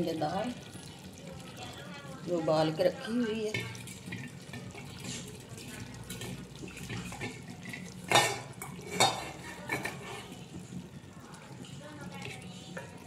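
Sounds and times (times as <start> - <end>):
wet food sloshing in pot: 0.0 - 13.0
utensil clanking against pot: 3.3 - 10.6.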